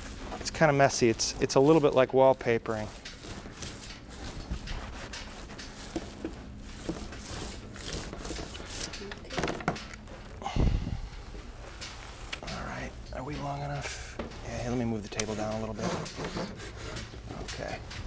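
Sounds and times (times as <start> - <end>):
cloth rubbed against ceiling: 0.0 - 9.1
small rustles and knocks: 0.0 - 10.4, 11.0 - 18.0.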